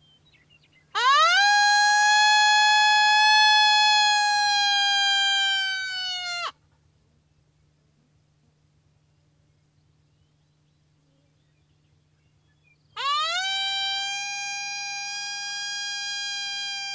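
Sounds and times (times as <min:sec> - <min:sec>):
coyote howl call: 0:00.9 - 0:06.5, 0:13.0 - 0:16.9.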